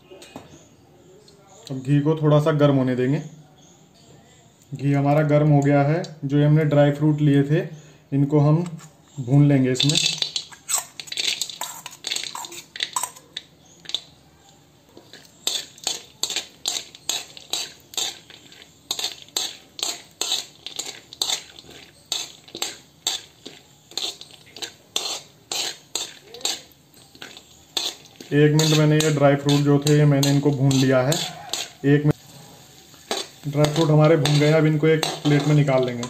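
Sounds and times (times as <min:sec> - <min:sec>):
metal spoon scraping metal pan: 0:09.8 - 0:14.0, 0:15.0 - 0:36.0.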